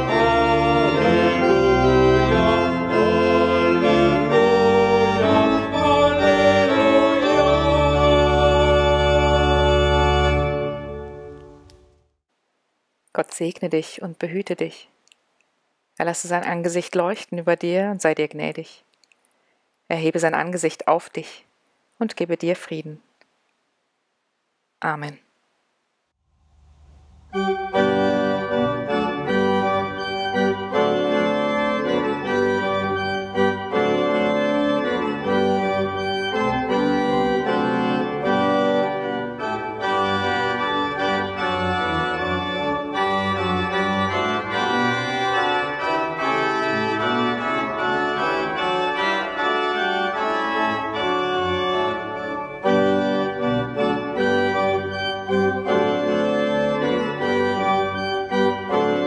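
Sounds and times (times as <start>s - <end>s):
pipe organ playing chords: 0.0s - 11.7s, 26.4s - 59.0s.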